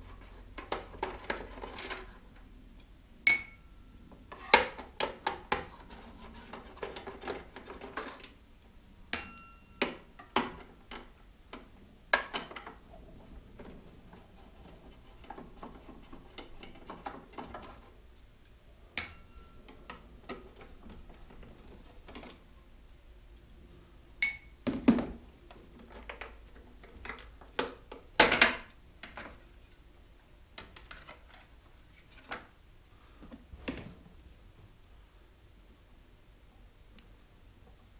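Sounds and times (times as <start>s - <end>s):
sharp metallic clink: 3.3s - 3.7s, 9.1s - 9.8s, 19.0s - 19.6s, 24.2s - 24.6s.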